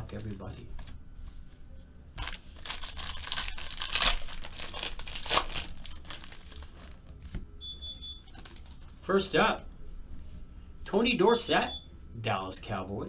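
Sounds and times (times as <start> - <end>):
foil wrapper crinkling and tearing: 2.2 - 7.3, 8.3 - 8.9.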